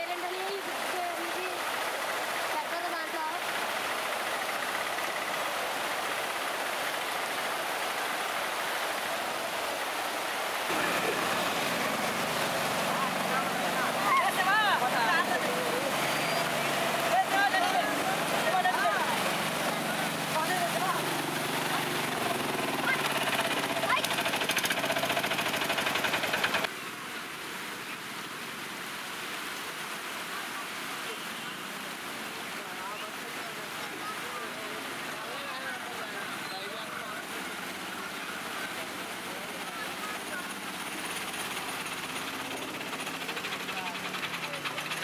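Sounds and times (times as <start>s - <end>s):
floodwater rushing across road: 0.0s - 45.0s
small engine running: 10.7s - 26.7s, 39.5s - 45.0s.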